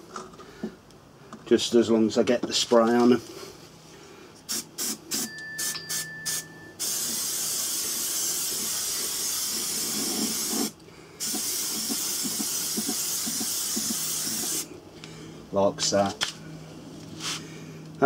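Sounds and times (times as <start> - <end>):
spray paint can hissing: 4.5 - 14.7.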